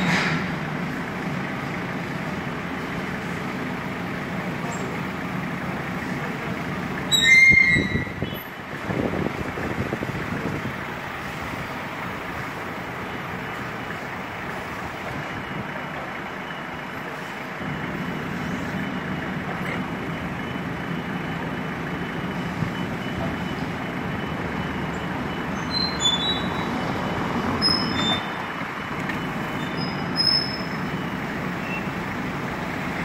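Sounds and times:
forklift engine running: 0:00.0 - 0:33.0
short high-pitched squeaks: 0:07.1 - 0:08.4, 0:25.6 - 0:26.7, 0:27.6 - 0:28.4, 0:29.6 - 0:30.8.

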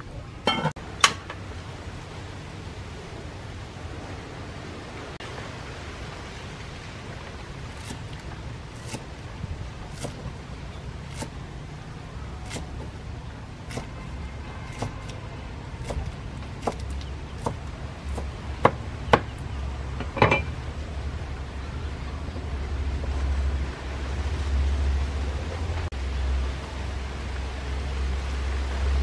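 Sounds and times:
cleaver chopping on wooden board: 0:09.9 - 0:10.3, 0:12.4 - 0:13.0, 0:13.7 - 0:14.0, 0:14.7 - 0:15.2, 0:15.8 - 0:19.4.

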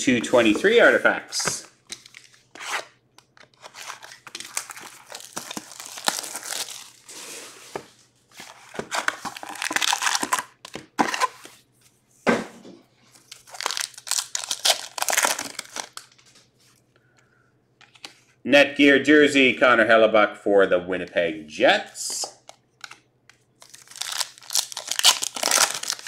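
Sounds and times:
wrappers tearing and crinkling: 0:03.6 - 0:07.6, 0:09.0 - 0:11.3, 0:13.2 - 0:16.2, 0:23.6 - 0:26.0.

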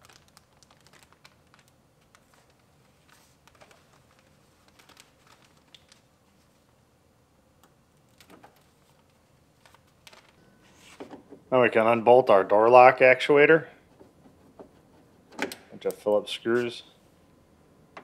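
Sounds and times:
plastic sheet crinkling as peeled: 0:00.0 - 0:06.6, 0:08.0 - 0:10.4.

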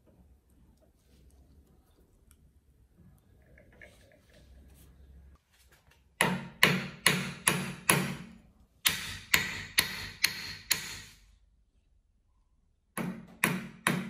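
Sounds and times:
hammer striking vise with ring: 0:06.2 - 0:11.2.

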